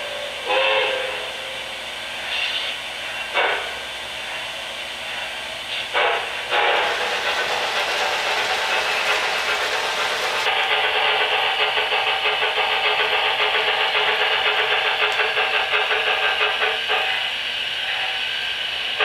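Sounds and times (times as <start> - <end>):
steam whistle toot: 0.0 - 1.6
steam hiss blasts: 5.2 - 19.0.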